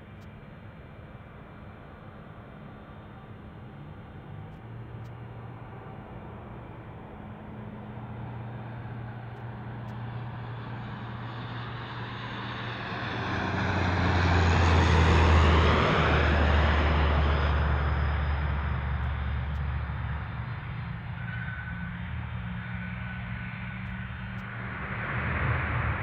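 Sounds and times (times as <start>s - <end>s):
jet aircraft noise: 4.0s - 26.0s.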